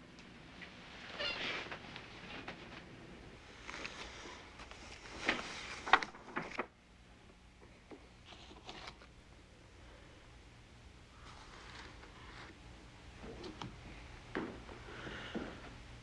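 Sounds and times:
cloth and bedding rustling: 0:00.7 - 0:06.6.

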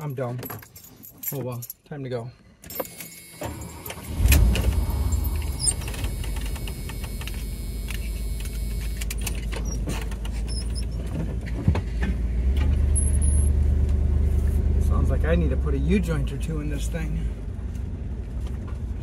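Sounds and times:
vehicle engine rumbling: 0:03.5 - 0:19.0.

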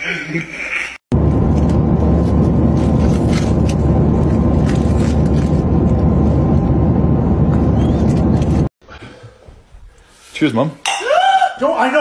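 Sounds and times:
airliner cabin rumble: 0:01.1 - 0:08.7.

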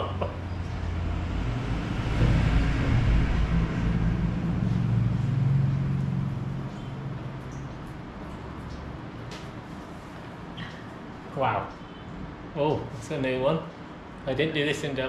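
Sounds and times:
vehicle engine passing by: 0:00.0 - 0:09.1.

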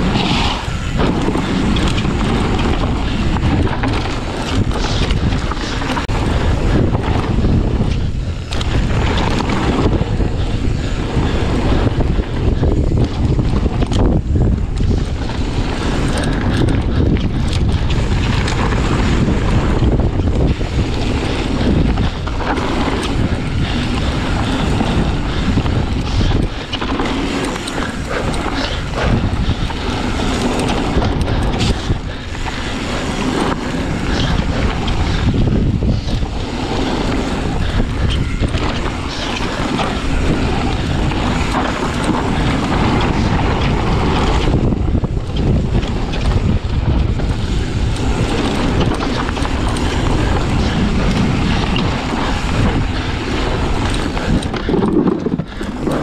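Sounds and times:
bike tyres rumbling: 0:00.0 - 0:56.0
wind rushing over microphone: 0:00.0 - 0:56.0
bike knocking over rough ground: 0:00.1 - 0:10.2.

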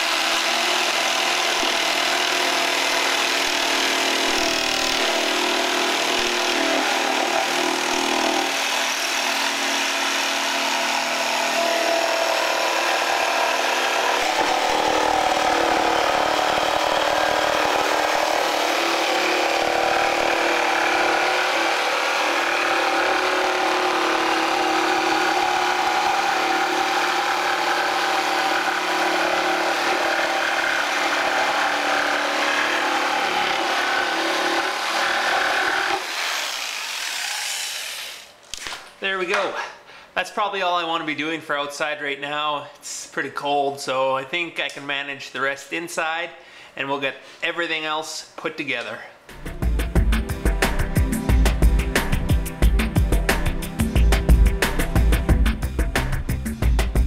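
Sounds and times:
jigsaw sawing plywood: 0:00.0 - 0:38.7.

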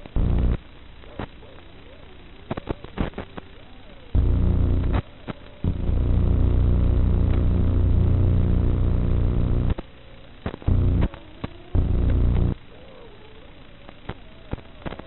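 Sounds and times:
clicks: 0:04.2 - 0:07.6, 0:08.6 - 0:12.6
low engine-like buzz: 0:05.7 - 0:09.8, 0:11.8 - 0:12.6.

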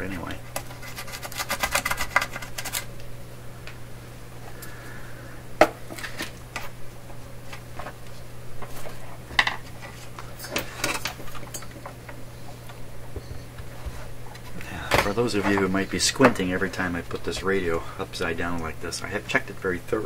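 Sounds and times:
low hum: 0:02.5 - 0:08.8.

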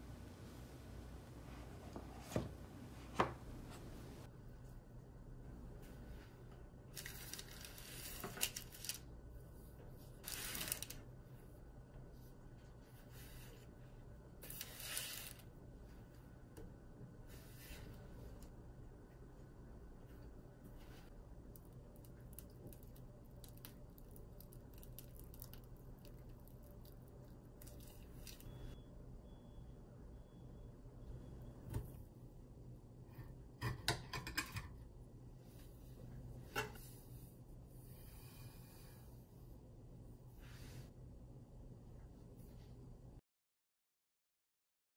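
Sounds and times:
low steady hum: 0:00.0 - 0:43.2
metal spatula scraping baking sheet: 0:14.4 - 0:15.4.

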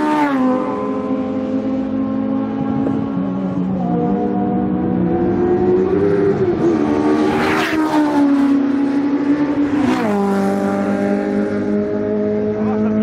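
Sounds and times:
race cars passing at speed: 0:00.0 - 0:13.0.

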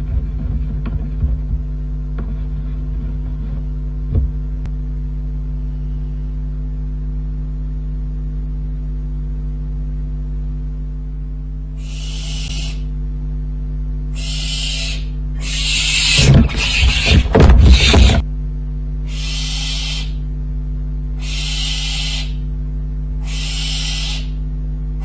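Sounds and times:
knocks: 0:00.0 - 0:04.4, 0:16.2 - 0:18.2
mains hum: 0:00.0 - 0:25.0
barn owl hissing call: 0:11.8 - 0:12.9, 0:14.1 - 0:18.2, 0:19.0 - 0:20.3, 0:21.2 - 0:22.5, 0:23.2 - 0:24.4.

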